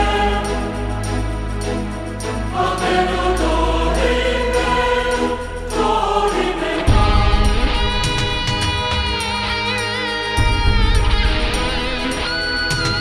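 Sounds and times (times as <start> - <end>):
choir holding long notes: 0.0 - 10.3
steady bass: 0.0 - 13.0
heavy loud bass: 6.6 - 12.1.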